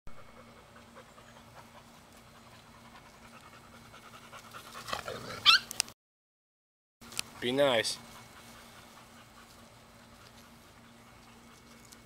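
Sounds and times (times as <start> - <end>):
puppies panting: 0.2 - 5.2, 7.2 - 12.0
puppy high-pitched cry: 5.3 - 5.7.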